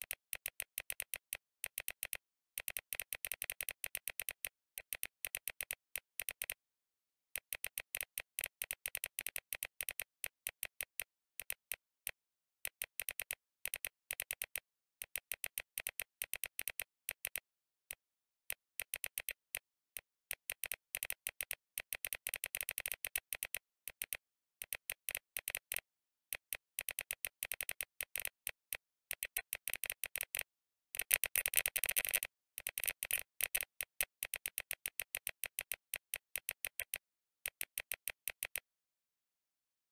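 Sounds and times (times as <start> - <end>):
mechanical keyboard typing: 26.4 - 38.6.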